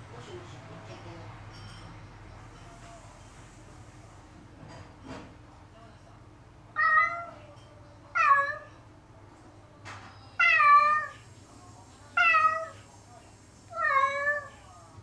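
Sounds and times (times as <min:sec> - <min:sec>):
cat meowing: 0:06.7 - 0:07.4, 0:08.1 - 0:08.8, 0:10.4 - 0:11.2, 0:12.2 - 0:12.8, 0:13.7 - 0:14.6.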